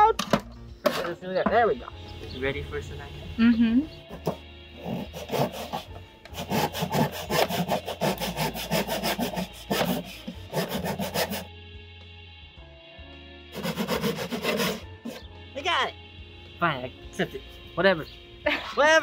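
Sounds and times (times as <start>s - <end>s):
hand saw cutting wood: 4.1s - 11.5s, 13.5s - 15.2s.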